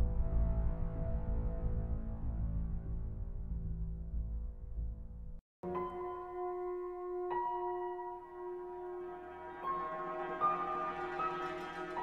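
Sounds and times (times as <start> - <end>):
slow instrumental music: 5.6 - 12.0.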